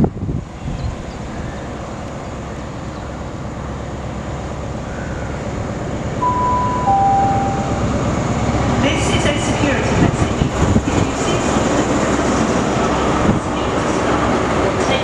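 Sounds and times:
train horn high note: 6.2s - 8.4s.

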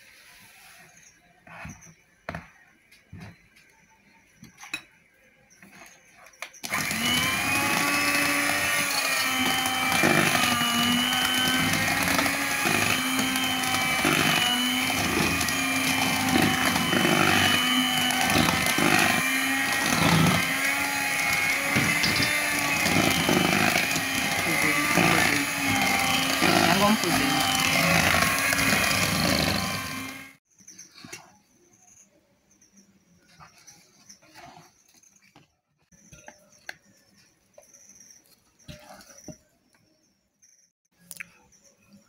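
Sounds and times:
electric hand mixer running: 6.6s - 30.4s.

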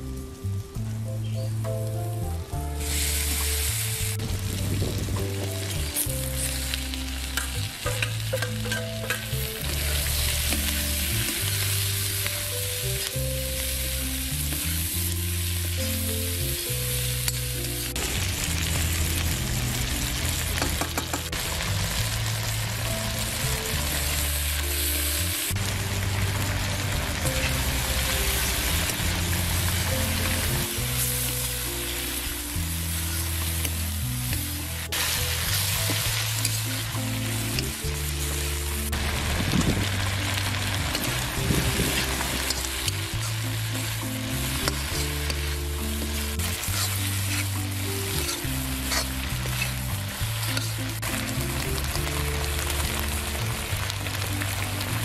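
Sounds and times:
food sizzling in a wok: 0.0s - 55.0s
metal spatula scraping pan: 46.0s - 50.8s.

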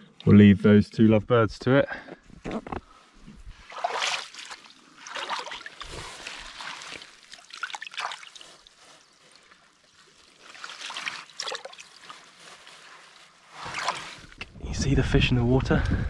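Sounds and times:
hand sloshing water in rock pool: 3.5s - 14.5s
water trickling and splashing: 3.5s - 14.5s.

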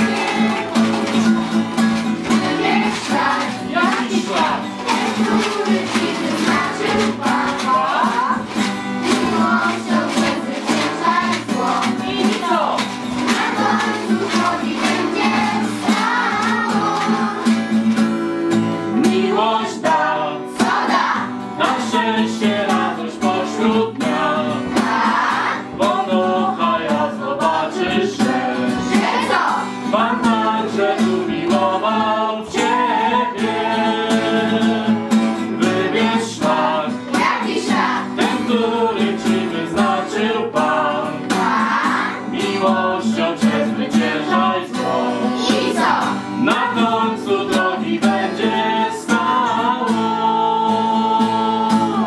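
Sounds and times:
children's choir singing: 0.0s - 52.0s
strummed acoustic guitar: 0.0s - 52.0s.

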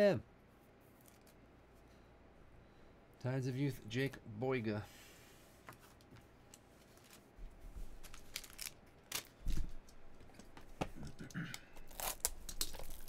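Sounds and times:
plastic and foil wrappers crinkling: 7.9s - 9.8s, 11.8s - 13.0s.

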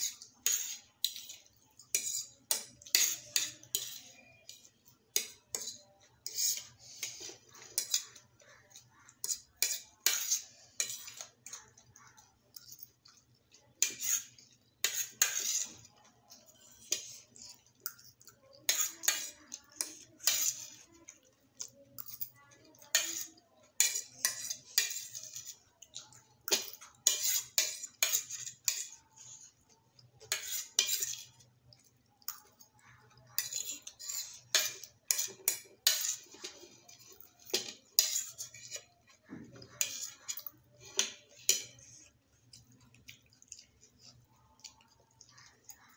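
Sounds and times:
metal forks scraping plates: 13.8s - 15.8s, 18.7s - 20.8s, 22.9s - 25.6s, 33.4s - 38.9s.

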